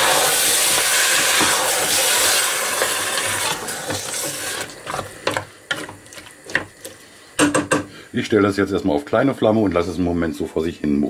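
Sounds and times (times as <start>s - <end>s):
vegetables sizzling in a pot: 0.0s - 8.0s
wooden spoon scraping a pot: 0.6s - 7.0s.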